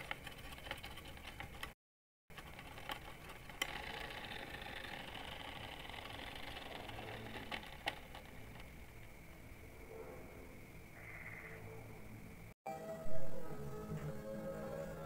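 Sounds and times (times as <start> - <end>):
model plane propeller whirring: 2.4 - 8.4.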